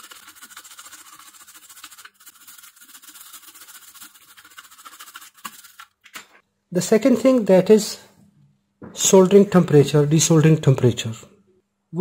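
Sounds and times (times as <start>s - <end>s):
cotton swab scrubbing circuit board: 0.0s - 6.1s.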